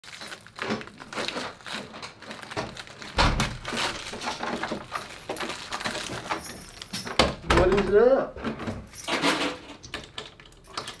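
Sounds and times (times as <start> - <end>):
plastic wrapper crinkling: 0.0 - 7.2
loud thump: 3.2 - 3.8.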